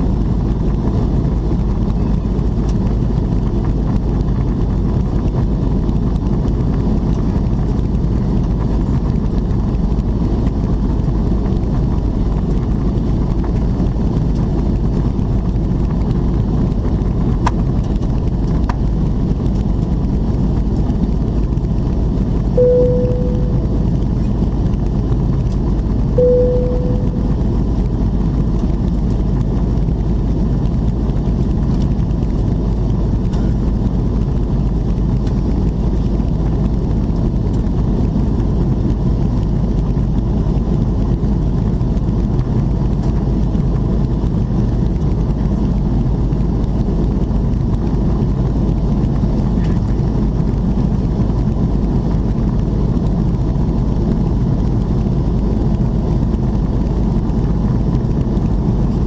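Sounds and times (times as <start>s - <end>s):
airplane cabin roar: 0.0s - 59.0s
single tone: 22.6s - 23.9s, 26.2s - 27.5s.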